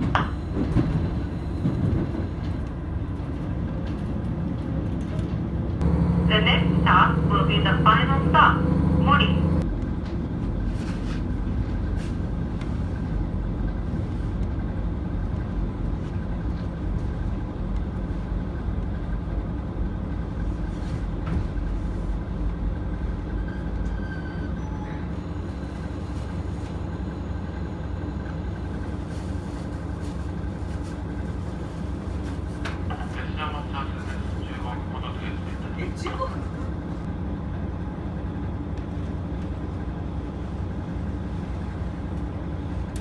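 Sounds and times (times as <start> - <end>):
diesel engine idling hum: 5.6 - 23.4, 25.2 - 43.0.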